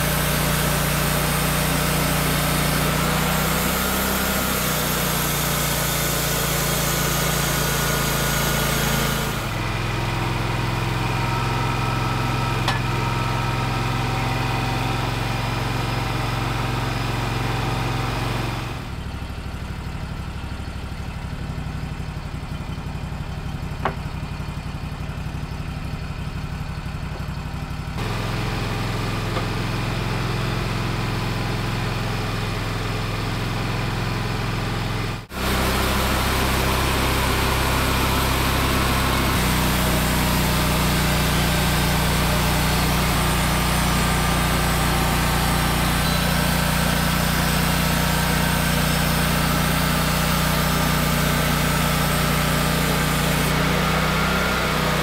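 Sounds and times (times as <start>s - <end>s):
sawmill gas engine idling: 0.0s - 55.0s.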